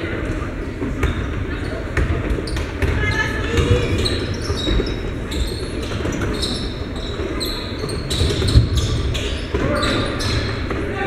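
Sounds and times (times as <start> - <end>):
echoing gym murmur: 0.0 - 11.0
sneakers squeaking: 0.0 - 11.0
basketball bouncing on hardwood: 2.0 - 4.9.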